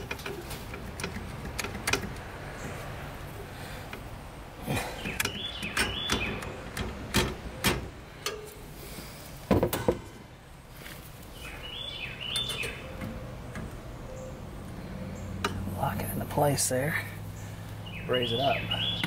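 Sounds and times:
metallic clicks and knocks: 0.0 - 2.3, 5.0 - 8.6
bird chirping: 4.7 - 6.9, 11.2 - 19.0.

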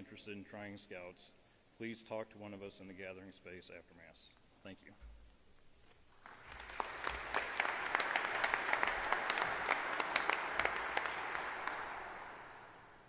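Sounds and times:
congregation applauding: 6.1 - 13.0.

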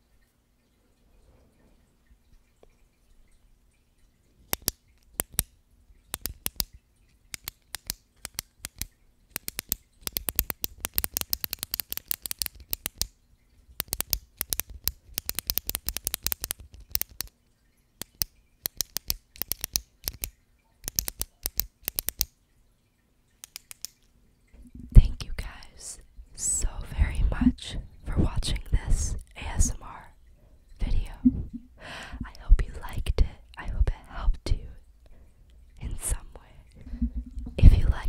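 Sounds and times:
pen tapping and clicking: 4.5 - 5.5, 6.1 - 6.7, 7.3 - 13.1, 13.8 - 17.3, 18.0 - 22.3, 23.4 - 24.0.

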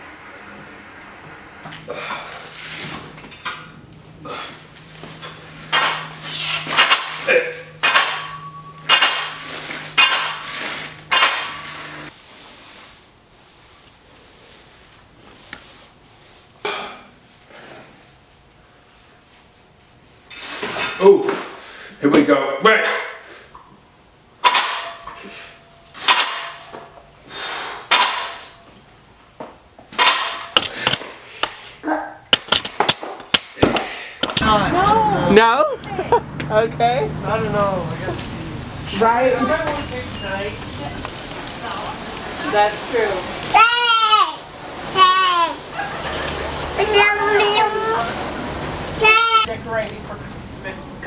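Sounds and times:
steady low hum: 0.0 - 51.0
weight plates clanking: 5.3 - 12.1.

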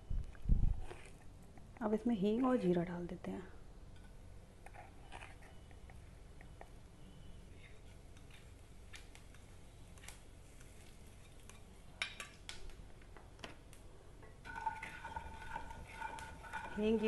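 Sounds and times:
seeds crackling in hot oil: 3.9 - 17.0.

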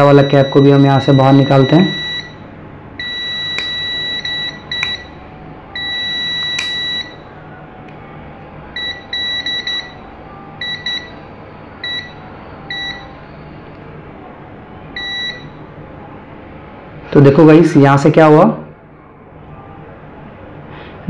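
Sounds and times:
multimeter continuity beeps: 0.0 - 7.3, 8.8 - 11.2, 11.8 - 13.2, 15.0 - 15.6.

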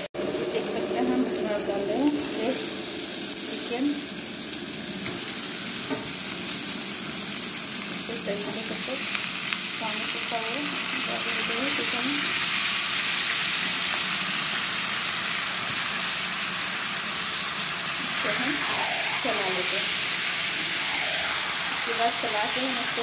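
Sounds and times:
chicken sizzling in oil: 0.0 - 23.0.

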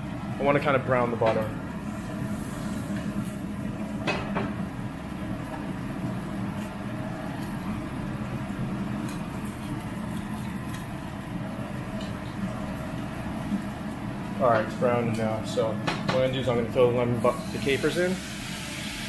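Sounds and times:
gas burner rumble: 0.0 - 19.0
butter sizzling in frying pan: 17.4 - 19.0.

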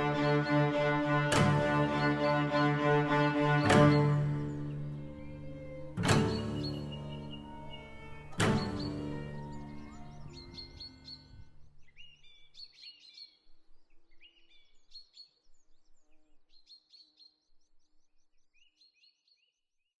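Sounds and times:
string ensemble chord: 0.0 - 11.4
birds chirping and singing: 0.0 - 17.8.

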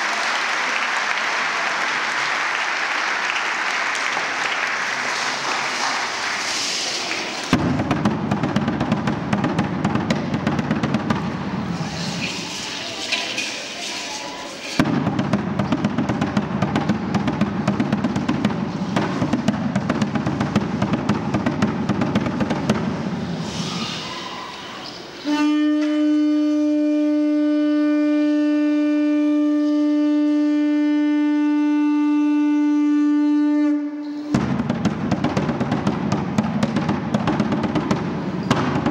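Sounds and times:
fast drumming with rattling: 6.4 - 23.2, 34.4 - 38.9
conch shell trumpet note: 25.2 - 34.4.

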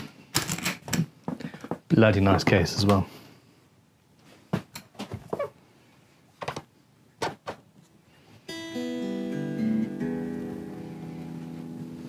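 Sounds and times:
electric guitar chords strummed: 8.5 - 12.0.

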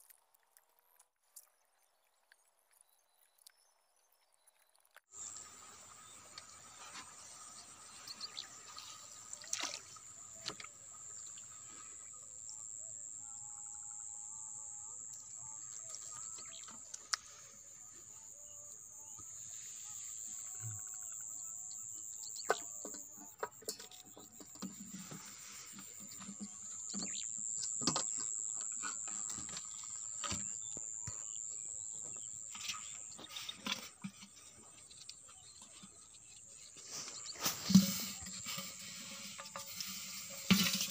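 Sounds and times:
small water splashes: 7.8 - 11.8.

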